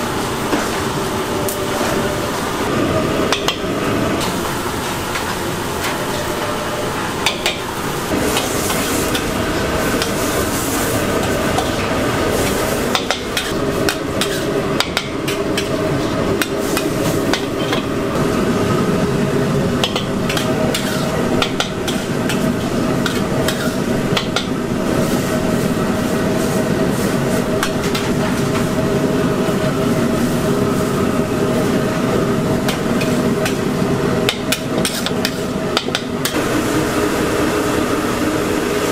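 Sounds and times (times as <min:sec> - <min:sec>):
noodles sizzling in a wok: 0:07.6 - 0:38.9
metal spatula scraping a wok: 0:13.3 - 0:14.6, 0:20.2 - 0:21.2.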